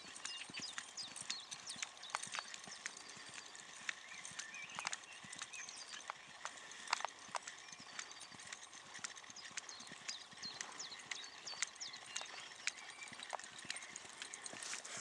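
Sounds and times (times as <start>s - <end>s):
horse hoofbeats on sand: 0.0s - 15.0s.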